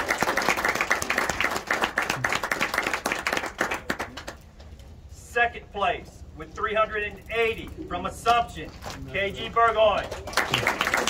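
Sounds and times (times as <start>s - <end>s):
people applauding: 0.0s - 4.4s, 10.0s - 11.0s.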